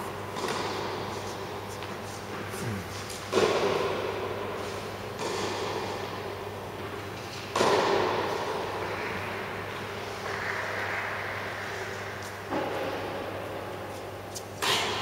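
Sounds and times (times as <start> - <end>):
tennis racket hitting ball: 0.3 - 1.2, 3.3 - 4.5, 5.2 - 6.1, 6.8 - 8.7.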